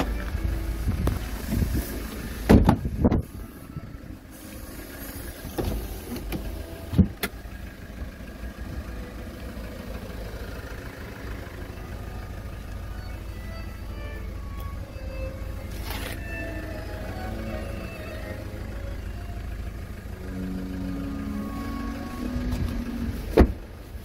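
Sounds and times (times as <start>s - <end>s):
car door shutting thud: 2.4s - 3.4s, 5.4s - 7.4s, 22.5s - 23.7s.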